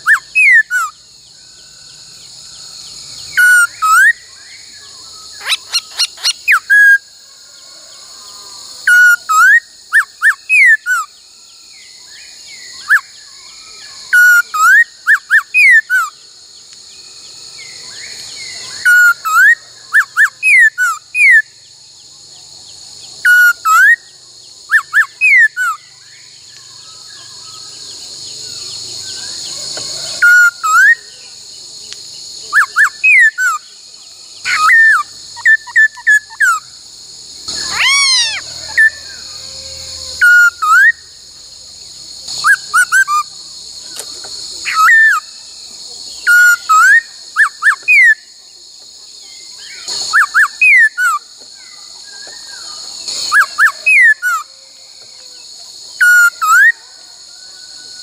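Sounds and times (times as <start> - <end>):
bird whistling song: 0.0 - 7.1, 8.3 - 16.2, 17.6 - 21.7, 23.0 - 31.4, 32.4 - 33.8, 34.4 - 36.7, 37.5 - 41.1, 42.3 - 43.3, 44.0 - 45.4, 46.2 - 48.3, 49.3 - 54.7, 56.0 - 57.1.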